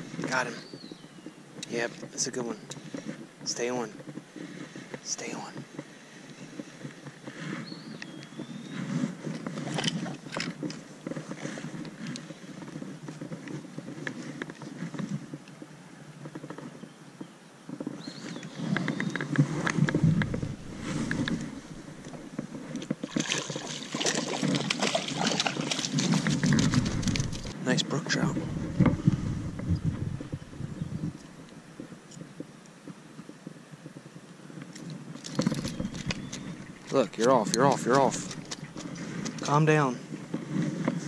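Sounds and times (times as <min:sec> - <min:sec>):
rustling and crackling brush: 0:00.0 - 0:41.0
wind buffeting microphone: 0:17.6 - 0:41.0
microphone handling noise: 0:17.7 - 0:41.0
clicks and scrapes: 0:17.8 - 0:27.6, 0:34.7 - 0:39.6.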